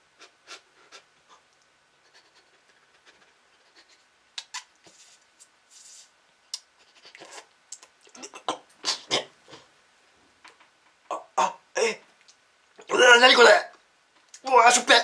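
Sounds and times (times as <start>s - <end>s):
rustles: 0.7s - 8.1s
mouth clicks and lip smacks: 3.2s - 5.9s, 6.5s - 9.6s.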